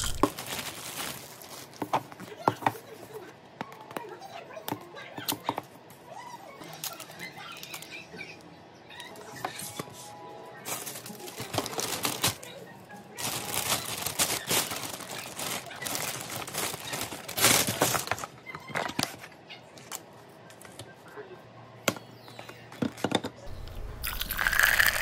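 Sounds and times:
plastic bag rustling: 0.0 - 2.1, 10.7 - 12.5, 13.1 - 18.3, 23.5 - 25.0.

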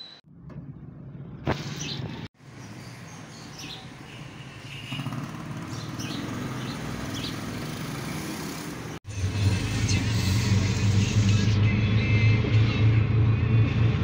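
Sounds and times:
street traffic: 0.0 - 14.0
motorcycle riding past: 4.8 - 11.5
low engine drone: 9.1 - 14.0.

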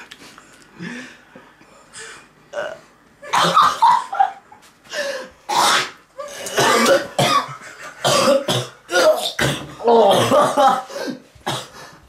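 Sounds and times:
men coughing and gagging: 3.2 - 4.4, 5.5 - 11.8.

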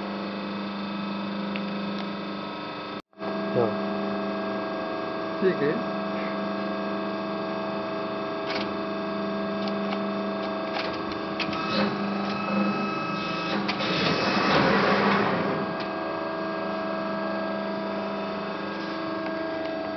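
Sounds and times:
hydraulic rushing noise: 11.5 - 15.9.

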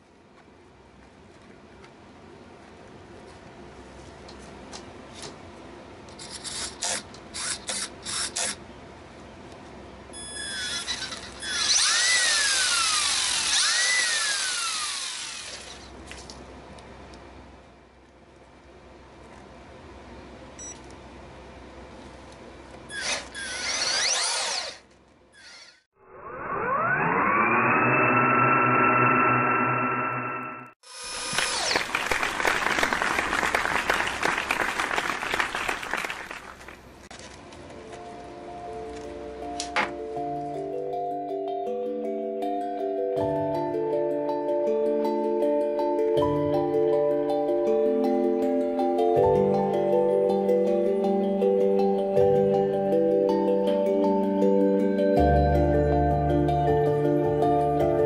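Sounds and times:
electric motor and gears whining: 6.2 - 8.6, 10.2 - 16.1, 22.9 - 31.9
applause: 31.4 - 36.9.

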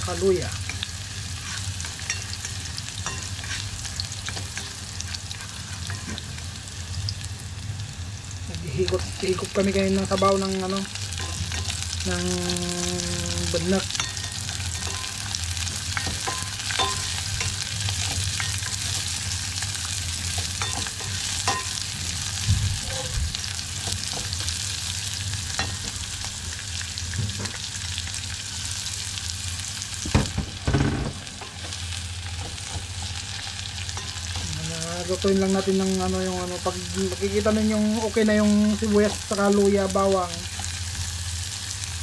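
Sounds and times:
onion sizzling in hot oil: 0.0 - 42.0
loud knocks: 30.1 - 31.3.

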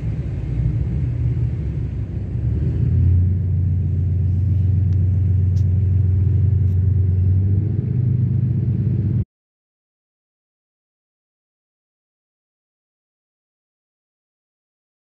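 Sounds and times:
ship engine drone: 0.0 - 9.2.

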